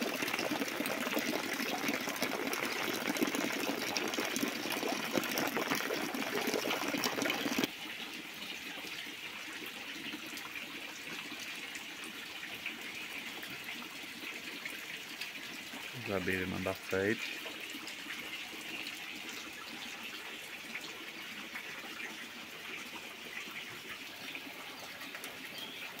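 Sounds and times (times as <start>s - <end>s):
hiss of falling rain: 0.0s - 0.5s
rain pattering on water: 0.0s - 7.7s
water pouring into a tank: 0.0s - 26.0s.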